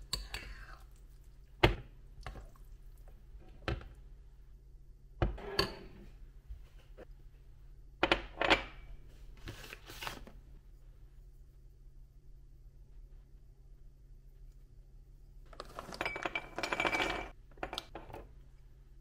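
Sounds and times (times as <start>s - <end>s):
faint low hum: 10.3s - 19.0s
objects knocking and clattering: 15.5s - 18.4s.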